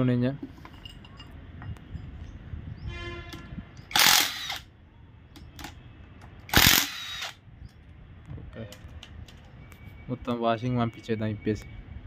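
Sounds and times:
impact wrench bursts: 0:03.9 - 0:04.7, 0:06.5 - 0:07.4.

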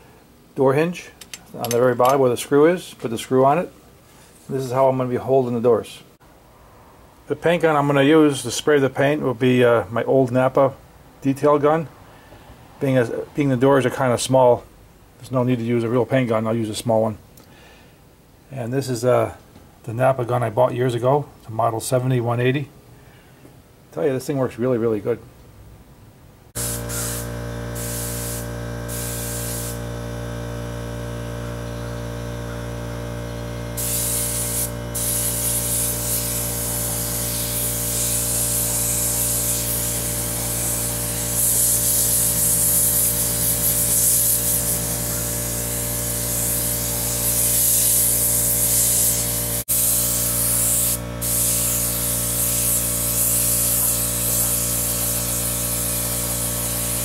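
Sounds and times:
low mechanical hum: 0:25.3 - 0:57.0
spray gun hissing: 0:26.6 - 0:57.0.

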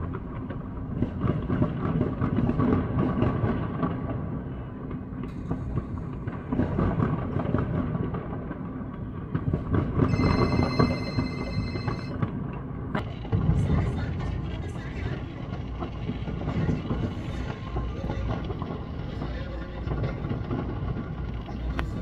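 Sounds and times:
fireworks crackling and popping: 0:00.0 - 0:22.0
steady high-pitched tone: 0:10.1 - 0:12.2.

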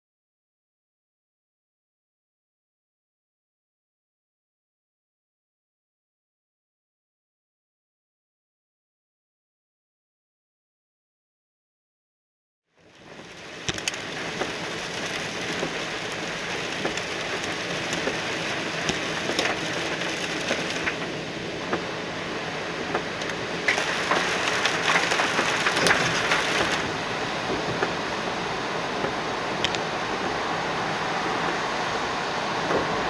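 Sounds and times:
heavy rain on car windshield: 0:12.8 - 0:33.0.

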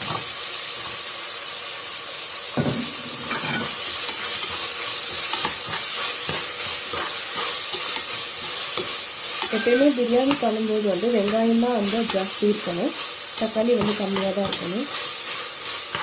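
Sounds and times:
vegetables sizzling in hot oil: 0:00.0 - 0:16.0.

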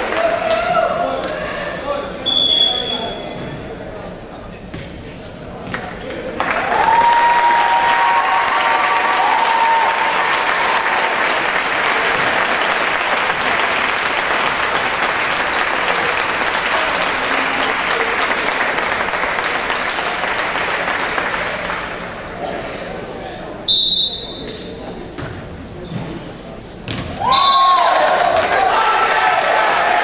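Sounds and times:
crowd applauding and cheering: 0:00.0 - 0:01.0, 0:06.2 - 0:22.4, 0:27.3 - 0:30.0.

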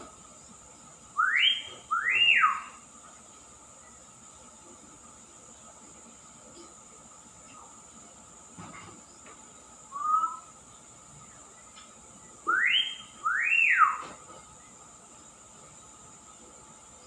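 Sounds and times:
myna bird whistling: 0:01.2 - 0:02.8, 0:09.9 - 0:10.5, 0:12.5 - 0:14.2.

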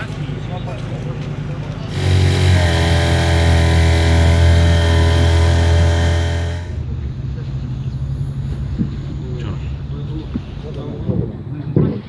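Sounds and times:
outboard motor running: 0:01.8 - 0:11.0.

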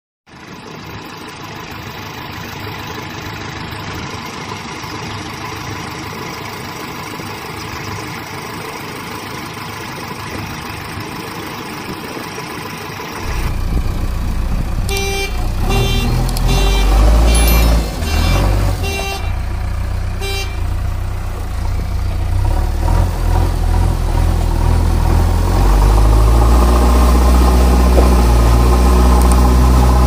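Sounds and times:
engine idling: 0:00.3 - 0:30.0
steady tones: 0:13.2 - 0:22.2.

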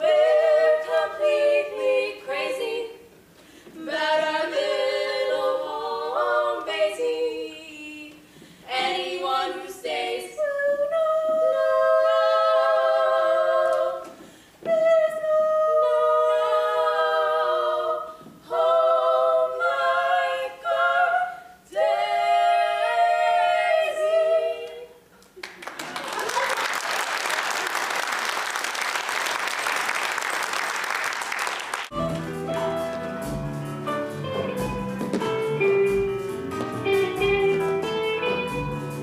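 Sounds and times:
women singing in close harmony: 0:00.0 - 0:03.1, 0:03.7 - 0:25.1.

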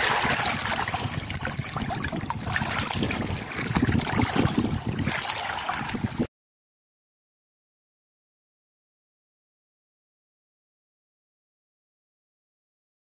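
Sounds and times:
seawater lapping over rocks: 0:00.0 - 0:06.3.

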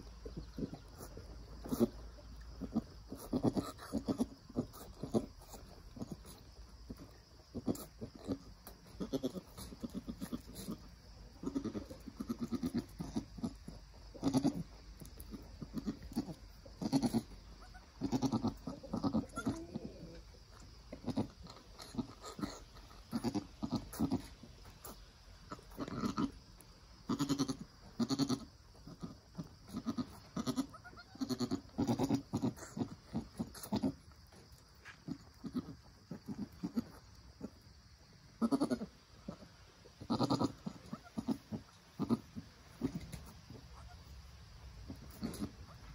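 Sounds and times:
goat bleating softly: 0:09.0 - 0:14.7, 0:15.6 - 0:19.8, 0:25.5 - 0:26.4, 0:27.0 - 0:34.0, 0:35.0 - 0:37.0, 0:38.4 - 0:44.1.

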